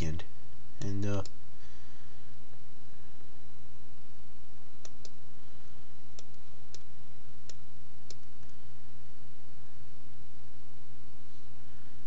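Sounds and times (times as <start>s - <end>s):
steady low hum: 0.0s - 12.0s
computer mouse clicks: 4.8s - 5.2s, 6.1s - 6.9s, 7.5s - 8.6s.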